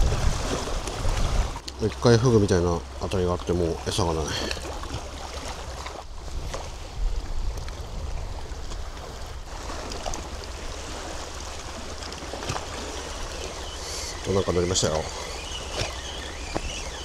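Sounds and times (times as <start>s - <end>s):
wind rumbling on microphone: 0.0s - 1.6s, 4.4s - 17.0s
sea water splashing on rocks: 8.6s - 17.0s.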